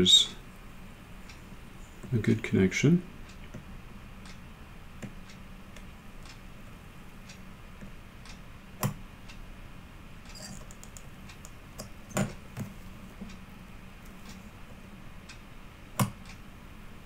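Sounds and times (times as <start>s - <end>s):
faint steady hum: 0.0s - 17.0s
soldering ticks and clicks: 3.3s - 6.4s, 7.2s - 9.4s, 10.2s - 13.4s, 15.3s - 16.4s.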